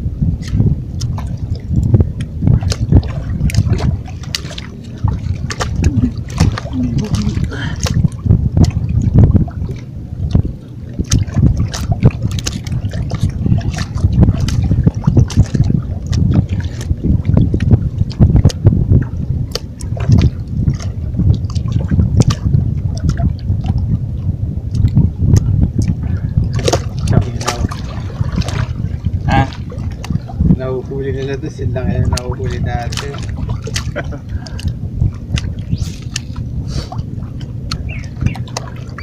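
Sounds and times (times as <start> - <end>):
wind buffeting microphone: 0.0 - 39.0
sea water washing against rocks: 0.4 - 24.1, 24.8 - 39.0.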